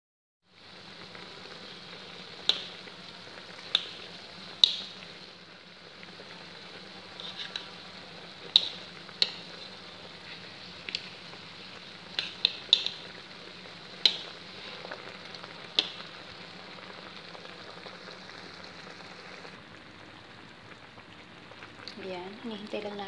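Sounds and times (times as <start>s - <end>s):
fish sizzling in oil: 0.5s - 23.0s
sharp clicks or pops: 2.4s - 2.8s, 3.6s - 5.0s, 8.4s - 9.6s, 12.1s - 13.2s, 14.0s - 14.4s, 15.7s - 16.1s.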